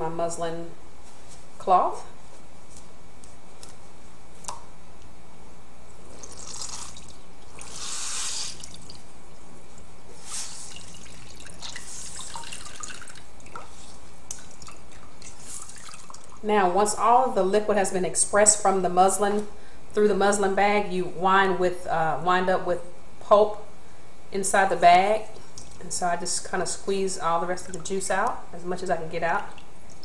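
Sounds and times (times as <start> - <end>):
juice dripping into a bowl: 6.1 - 7.8, 8.5 - 9.5, 10.6 - 16.4, 25.4 - 25.8, 27.6 - 28.4
juice splashing spurts: 6.1 - 9.0, 10.5 - 13.5, 14.3 - 16.4.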